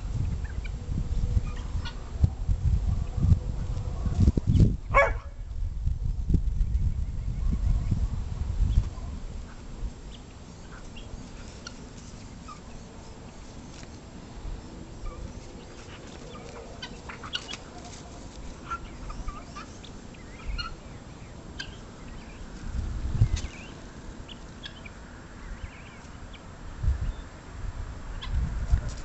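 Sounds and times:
steady low rumble: 0.0s - 13.4s
turkey calls: 1.4s - 2.1s, 9.5s - 13.9s, 15.0s - 22.4s, 23.4s - 25.0s
dog calls and clicks: 15.8s - 19.7s.

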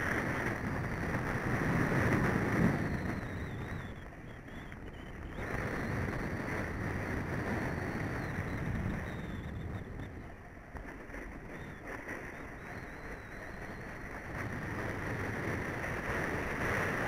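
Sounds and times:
snowboard scraping snow: 0.0s - 2.9s, 5.5s - 17.0s
wind rushing over microphone: 0.0s - 17.0s.

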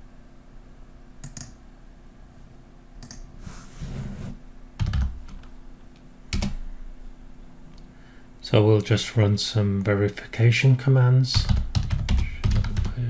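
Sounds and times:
keyboard keystrokes: 1.2s - 1.6s.

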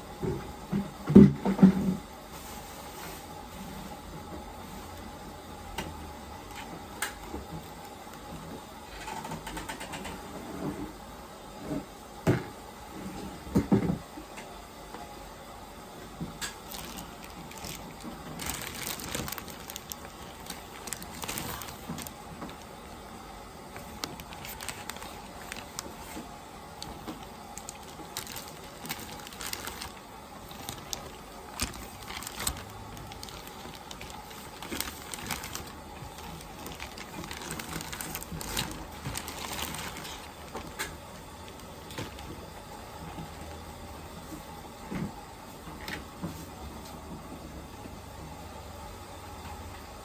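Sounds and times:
plastic bags crinkling: 5.8s - 9.3s, 16.4s - 42.4s.

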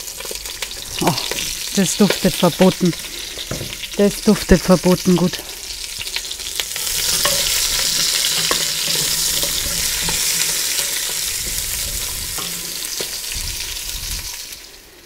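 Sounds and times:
onions sizzling in butter: 0.0s - 15.0s
wooden spoon scraping a pot: 6.8s - 13.4s.

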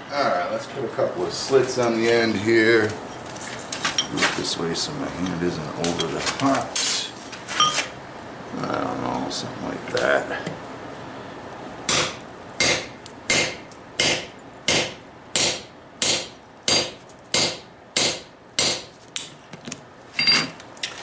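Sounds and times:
hammer striking chisel on metal: 11.9s - 19.3s.

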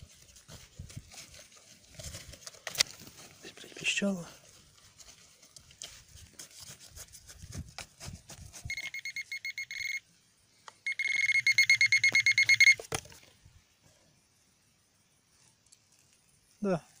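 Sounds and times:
soil crunching: 0.0s - 9.0s
metal detector beeping: 8.6s - 10.0s, 10.8s - 13.0s.

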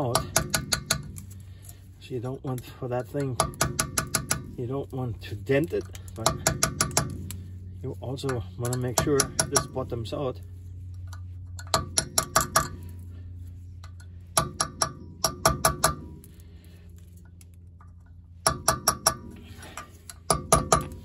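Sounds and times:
steady low hum: 0.0s - 21.0s
hammer tapping metal cap: 3.2s - 4.6s.

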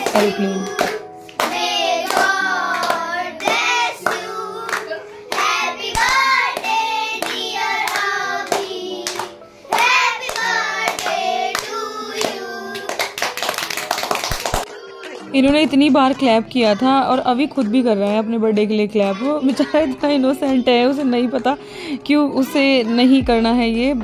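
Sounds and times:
group singing a celebration song: 0.0s - 13.6s
hands clapping: 0.0s - 15.3s.

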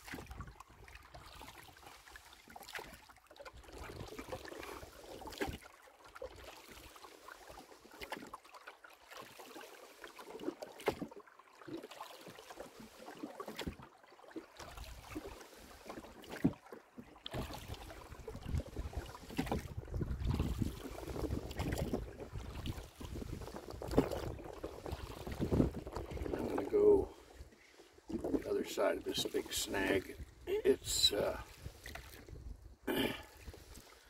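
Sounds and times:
water swishing from oars: 0.0s - 34.0s
wind rumbling on microphone: 18.2s - 27.2s, 30.2s - 32.8s.

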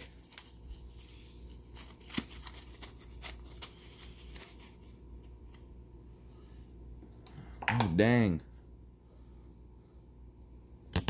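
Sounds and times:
foam packing rustling: 0.0s - 5.0s.

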